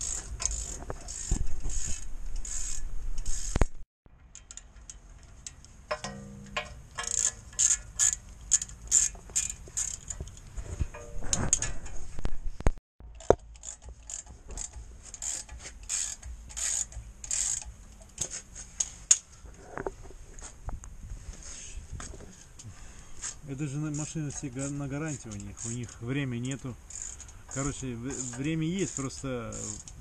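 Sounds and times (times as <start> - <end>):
socket ratchet clicking: 4.3 - 10.4, 13.1 - 18.0, 26.8 - 30.0.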